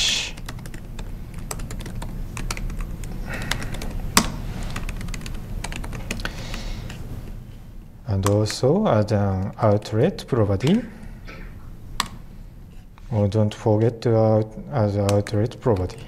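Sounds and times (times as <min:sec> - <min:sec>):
low steady hum: 0:00.0 - 0:16.0
laptop keyboard typing: 0:00.4 - 0:07.0, 0:15.0 - 0:16.0.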